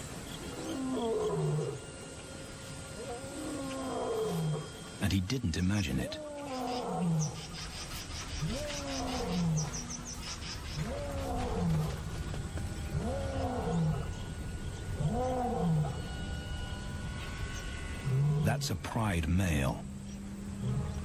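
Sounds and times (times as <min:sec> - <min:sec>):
lion roaring: 0:00.5 - 0:01.8, 0:03.0 - 0:04.8, 0:08.4 - 0:10.1, 0:10.8 - 0:12.1, 0:12.9 - 0:14.3, 0:14.9 - 0:16.1, 0:20.6 - 0:21.0.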